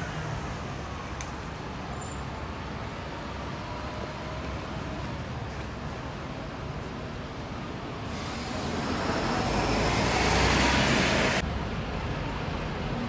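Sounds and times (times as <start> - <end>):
vehicle passing close: 8.1 - 11.4.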